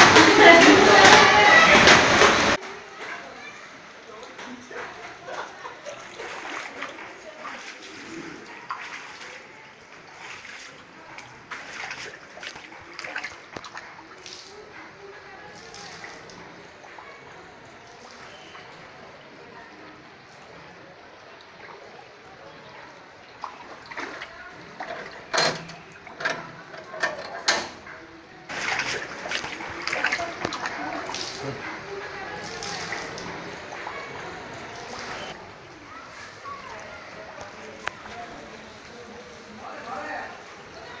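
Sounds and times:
water splashing and trickling: 0.0s - 41.0s
water drips: 4.1s - 27.0s, 27.9s - 39.4s
metal gate rattling and clanking: 24.8s - 28.0s.

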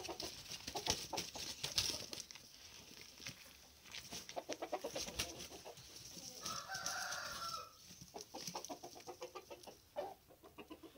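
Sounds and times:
chickens clucking: 0.0s - 10.9s
chicken drawn-out call: 4.4s - 10.9s.

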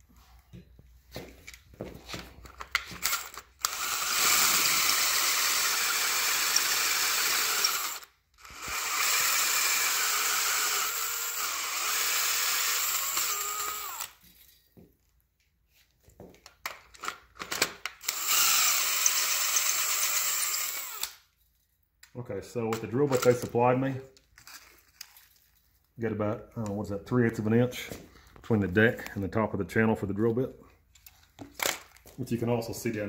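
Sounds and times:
cordless drill drilling into metal: 3.0s - 14.2s, 18.0s - 21.2s.

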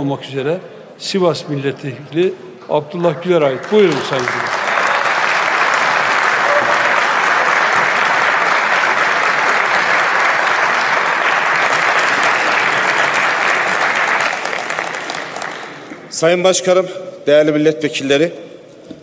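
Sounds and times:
steady applause: 3.4s - 16.2s.

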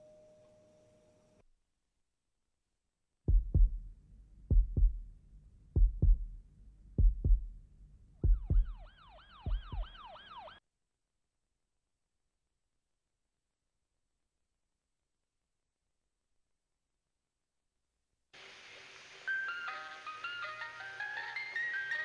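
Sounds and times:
heartbeat thumps: 3.3s - 10.1s
siren yelping: 8.3s - 10.6s.

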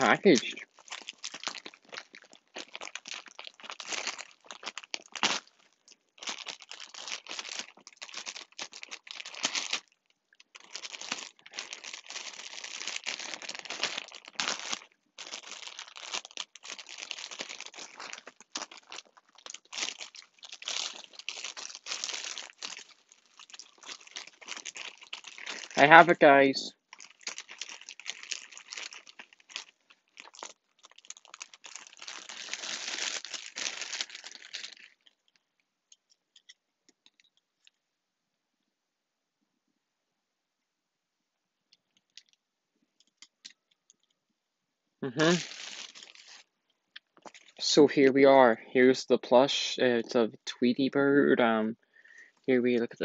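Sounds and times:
packaging crinkling and tearing: 0.0s - 35.6s, 45.0s - 47.7s.

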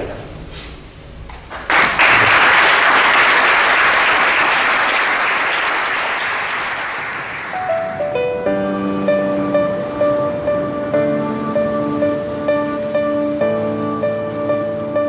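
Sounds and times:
audience applauding: 1.5s - 8.1s.

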